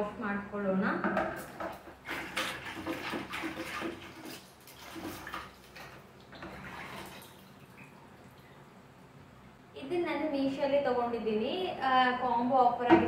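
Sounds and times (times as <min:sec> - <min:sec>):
water splashing in a plastic tub: 0:01.5 - 0:08.6.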